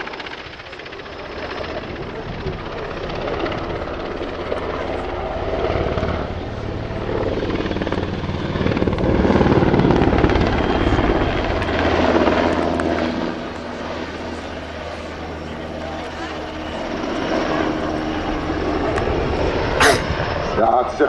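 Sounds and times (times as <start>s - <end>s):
helicopter rotor beating: 0.0s - 21.0s.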